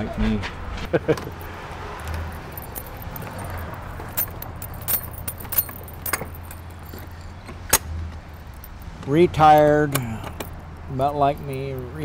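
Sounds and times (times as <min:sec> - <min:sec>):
keys jingling: 0:01.1 - 0:07.5, 0:08.2 - 0:09.0, 0:10.0 - 0:12.0.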